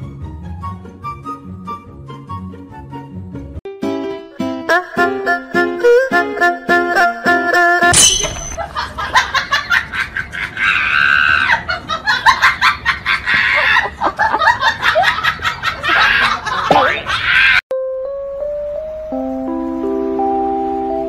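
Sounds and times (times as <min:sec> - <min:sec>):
people laughing hard: 0:08.6 - 0:17.6.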